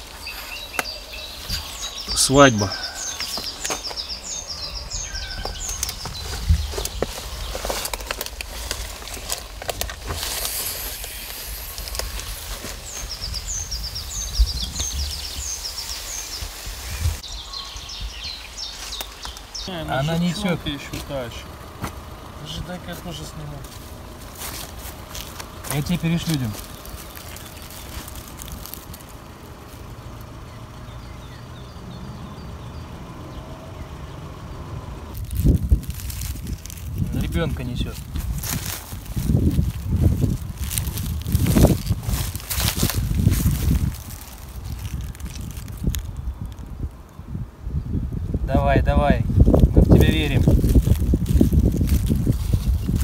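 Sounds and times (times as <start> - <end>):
twigs clicking: 0.0 - 16.8, 18.6 - 19.7, 23.6 - 30.3, 35.1 - 47.2, 49.4 - 53.0
dry leaves rustling: 0.0 - 31.2, 35.1 - 47.4, 48.9 - 53.0
low wind rumble: 0.0 - 53.0
songbird singing: 0.0 - 53.0.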